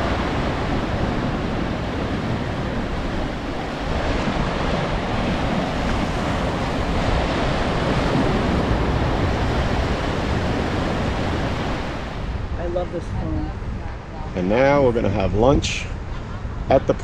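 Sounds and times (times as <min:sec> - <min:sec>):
ocean surf rushing: 0:00.0 - 0:17.0
wind buffeting microphone: 0:00.0 - 0:17.0.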